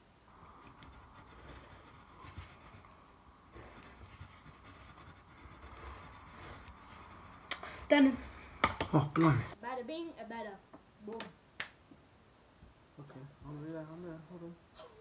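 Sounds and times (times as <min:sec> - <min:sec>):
pencils scratching on paper: 0:00.3 - 0:08.4.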